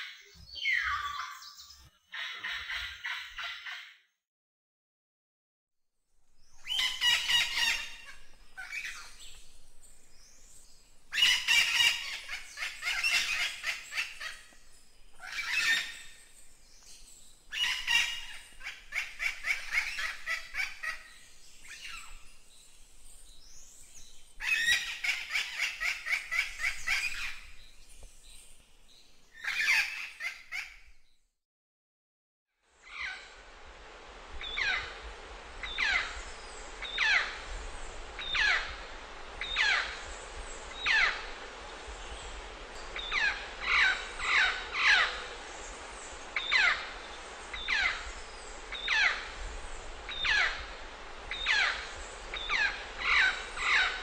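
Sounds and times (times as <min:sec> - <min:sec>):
parrots calling: 0:15.2 - 0:16.0, 0:35.8 - 0:36.0, 0:39.6 - 0:39.8, 0:43.1 - 0:45.2, 0:46.4 - 0:46.8, 0:47.6 - 0:48.0, 0:48.8 - 0:49.2, 0:50.2 - 0:50.6, 0:51.4 - 0:54.0.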